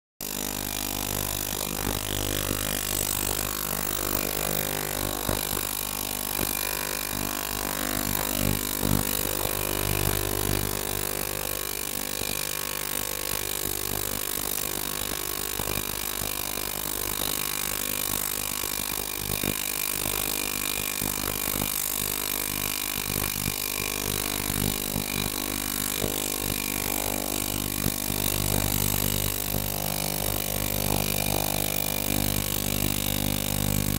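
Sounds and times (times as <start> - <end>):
ultrasonic cleaner humming: 23.5 - 33.9.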